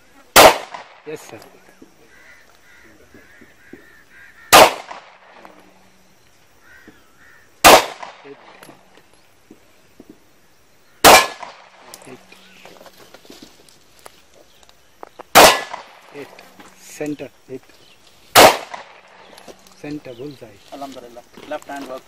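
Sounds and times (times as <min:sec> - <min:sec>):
pistol shots with echo: 0:00.3 - 0:01.4, 0:04.5 - 0:05.6, 0:07.6 - 0:08.7, 0:11.0 - 0:12.1, 0:15.3 - 0:16.2, 0:18.3 - 0:19.2.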